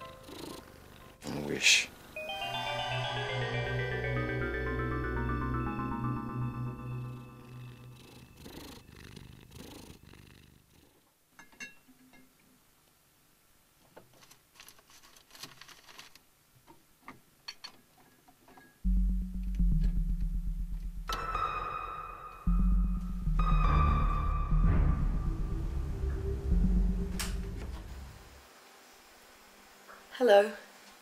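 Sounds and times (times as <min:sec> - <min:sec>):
cat purring loudly: 0:00.0 - 0:01.4, 0:07.4 - 0:11.0
soft music: 0:00.0 - 0:08.9, 0:18.8 - 0:28.4
faint clicks and rustles: 0:13.8 - 0:18.8.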